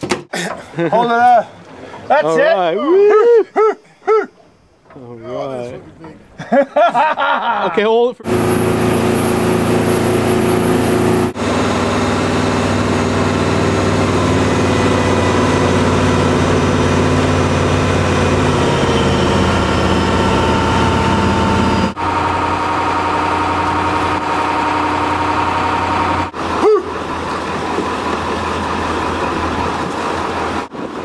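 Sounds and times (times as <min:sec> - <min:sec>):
boat engine running: 0:08.2 - 0:31.0.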